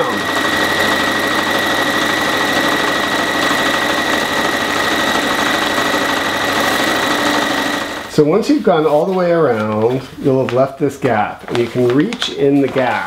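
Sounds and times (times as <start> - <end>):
sewing machine running: 0.0 - 8.3.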